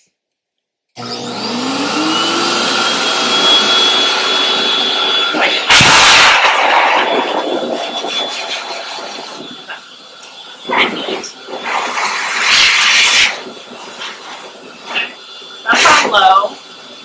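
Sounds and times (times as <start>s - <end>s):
dryer blower motor whine: 1.0s - 17.0s
rush of air: 3.4s - 10.2s, 11.0s - 16.0s.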